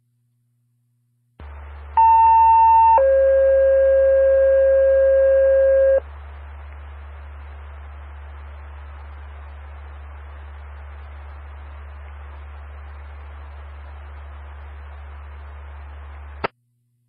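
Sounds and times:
radio hiss and hum: 1.4 - 16.5
two-tone paging tones: 2.0 - 6.0.

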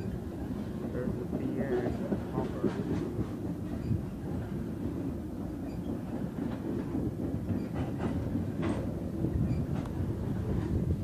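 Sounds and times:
train wheels rumbling on rails: 0.0 - 11.0
wheels clicking over rail joints: 0.0 - 11.0.

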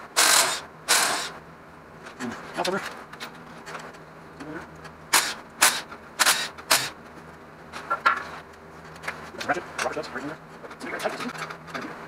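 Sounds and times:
cordless power tool bursts: 0.2 - 1.3, 5.1 - 7.0.

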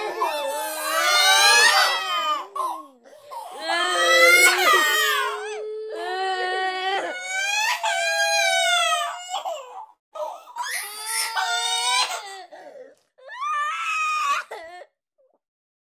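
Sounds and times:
child crying and wailing: 0.0 - 2.6, 3.3 - 9.4.

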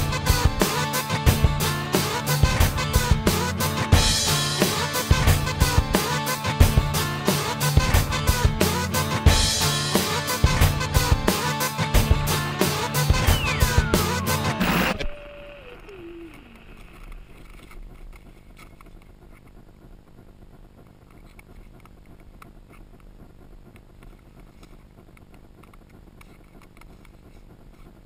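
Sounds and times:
falling musical tone: 12.9 - 15.0.

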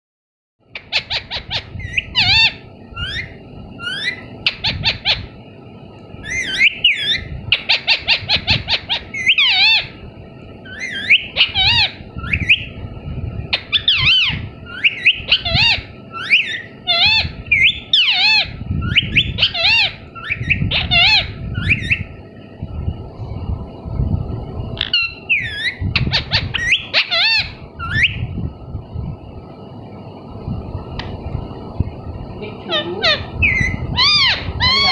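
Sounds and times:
parakeet calling and chattering: 0.7 - 5.4, 6.2 - 12.8, 13.5 - 22.4, 24.8 - 28.4, 32.5 - 34.9.

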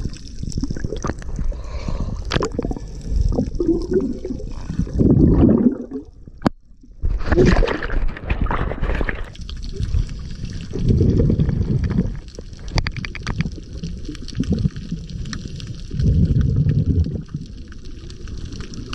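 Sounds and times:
diver's bubbles burbling: 0.0 - 1.5, 2.2 - 18.9
steady hiss with crackles: 0.0 - 5.0, 8.8 - 18.9
water rushing underwater: 0.0 - 18.9.

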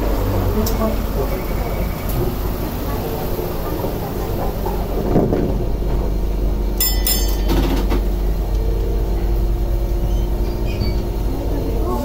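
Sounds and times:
tram motors and wheels rumbling: 0.0 - 12.0.

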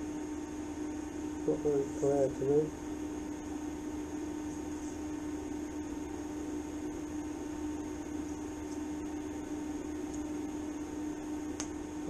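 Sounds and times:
welding arc humming and hissing: 0.0 - 12.0.

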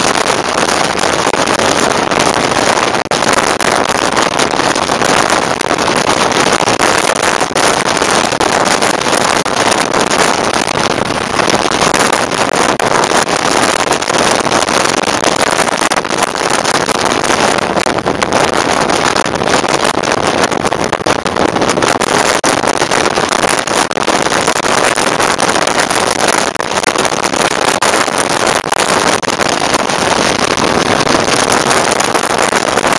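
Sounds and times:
wind rush over microphone: 0.0 - 32.9.

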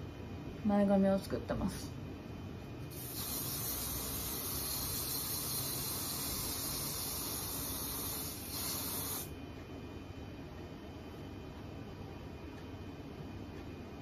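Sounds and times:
aerosol can spraying: 2.9 - 9.3.

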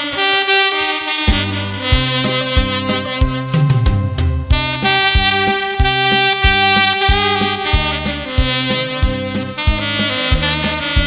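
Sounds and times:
saxophone ballad melody: 0.0 - 11.0
bass line: 1.2 - 11.0
drum beat: 1.3 - 11.0.

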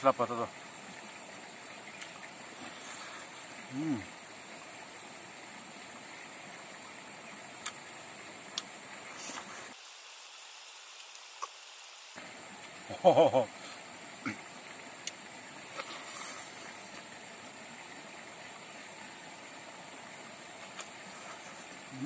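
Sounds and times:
man humming mm: 3.6 - 4.1.

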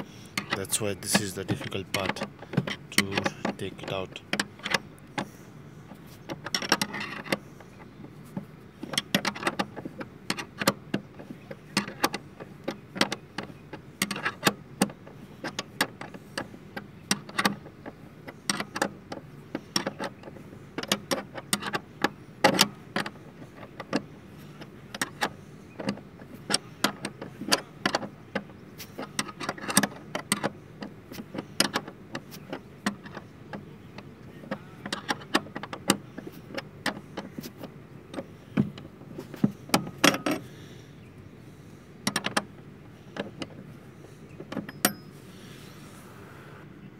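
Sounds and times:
wrench clicking on a bolt: 24.6 - 33.6, 34.3 - 40.4.

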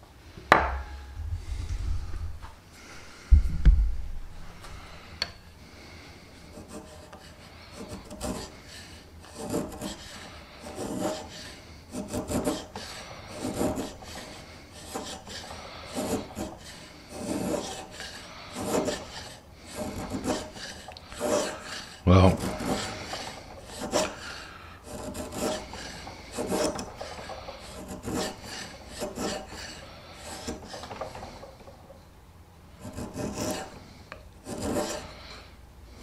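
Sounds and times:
chisel scraping wood: 6.3 - 32.1, 32.7 - 35.5.

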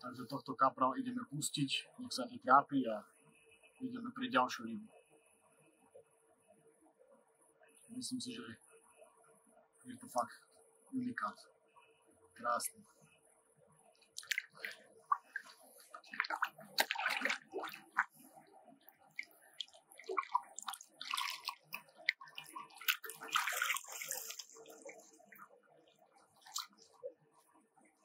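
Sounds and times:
water sloshing and splashing: 14.0 - 27.3.

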